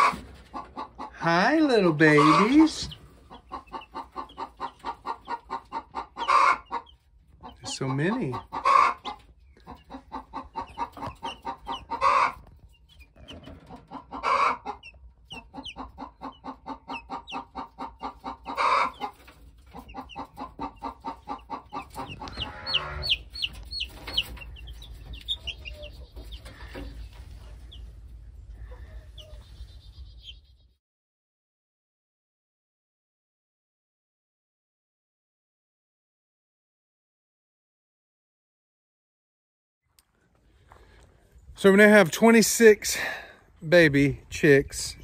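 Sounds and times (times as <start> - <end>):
baby chicks peeping: 0.0 - 30.8.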